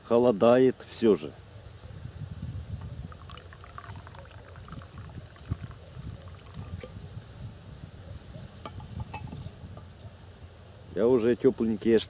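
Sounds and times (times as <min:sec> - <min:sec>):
wind rumble on microphone: 0:01.5 - 0:10.5
sharp knock of metal cup: 0:08.6 - 0:09.4.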